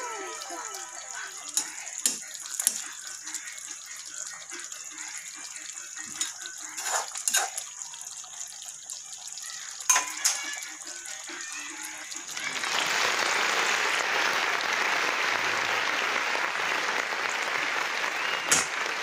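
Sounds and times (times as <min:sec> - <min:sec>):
spoon stirring stew in a pot: 0:00.4 - 0:08.7
spoon clinking against metal pot: 0:01.5 - 0:02.9, 0:06.0 - 0:07.7, 0:09.9 - 0:10.6.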